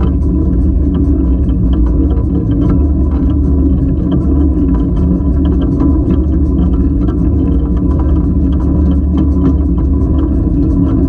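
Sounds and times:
small clicks and clanks: 0.0 - 11.0.

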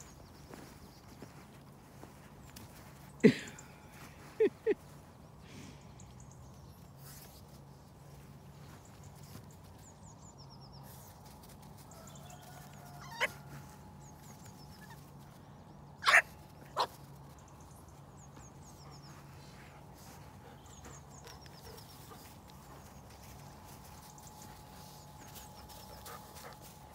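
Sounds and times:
puppy barking: 16.0 - 16.9.

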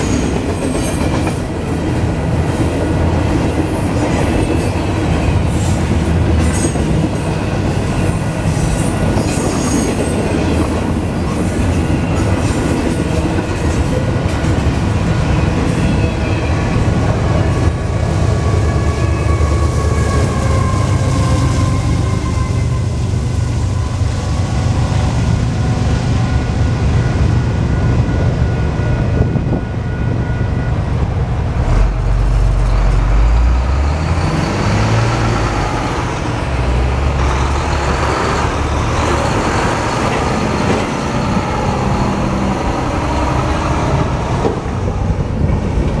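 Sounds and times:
heavy truck engines rumbling: 28.3 - 46.0.

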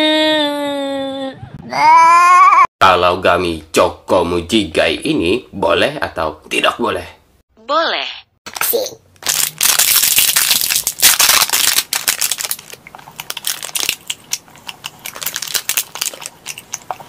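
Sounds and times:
candy chewing and crunching: 8.6 - 17.0
chewing clicks: 12.8 - 17.0.

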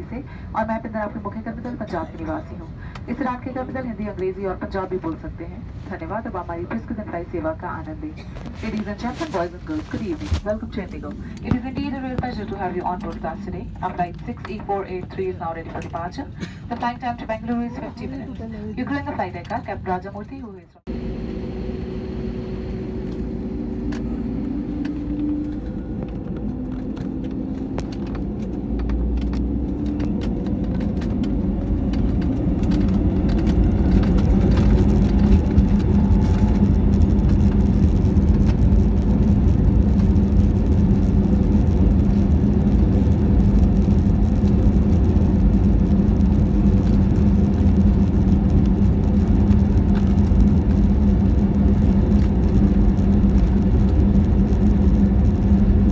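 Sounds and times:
jet engines spooling up: 20.9 - 55.9.

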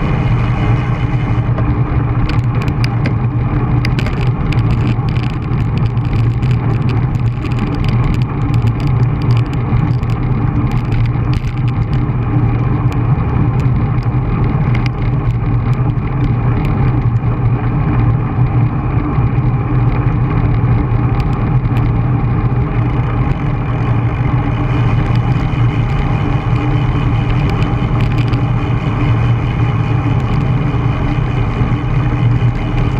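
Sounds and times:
bicycle tyre hum on asphalt: 0.0 - 32.9
wind rush: 0.0 - 32.9.

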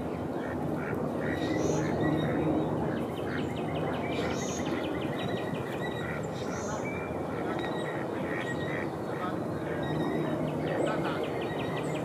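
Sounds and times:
duck calling: 5.8 - 10.4.

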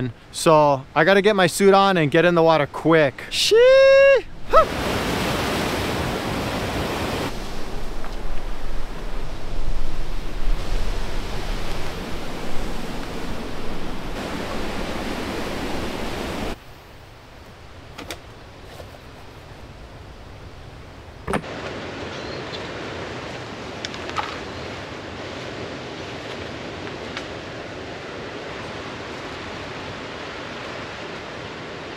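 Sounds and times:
surf breaking on rocks: 2.9 - 16.6
wind buffeting microphone: 3.8 - 16.6.

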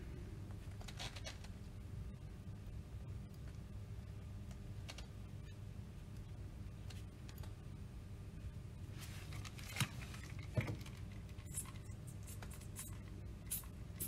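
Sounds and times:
steady low hum: 0.0 - 14.0
spray bottle spritzes: 12.2 - 14.0.

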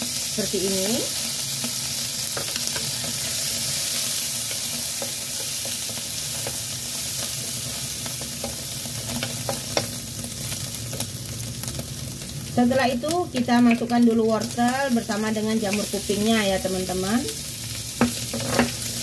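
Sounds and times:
food sizzling in hot oil: 0.0 - 19.0
spatula tapping and scraping pan: 18.0 - 19.0.

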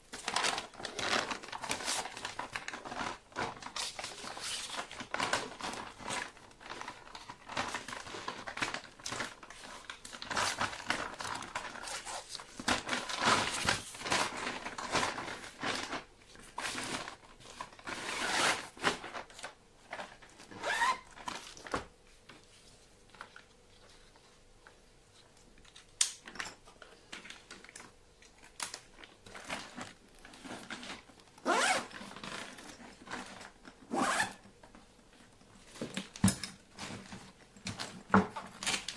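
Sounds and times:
zippers being pulled: 31.4 - 32.6, 33.9 - 34.4.

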